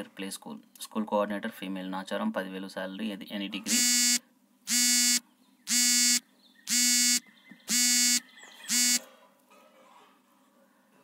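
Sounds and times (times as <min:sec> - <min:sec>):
buzzy electronic alarm beeps: 0:03.7 - 0:09.0.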